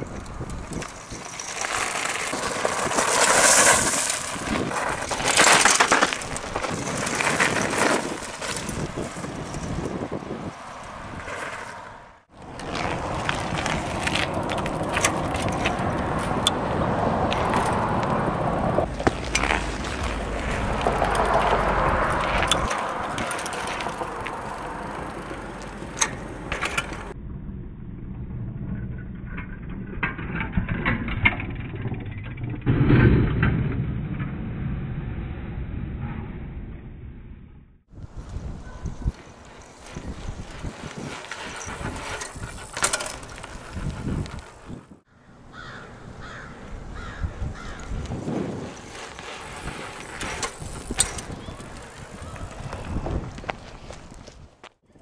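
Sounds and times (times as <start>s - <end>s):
bicycle frame and chain rattling: 0.0s - 27.2s, 38.0s - 55.0s
bicycle tyres rolling: 0.0s - 34.0s, 37.9s - 55.0s.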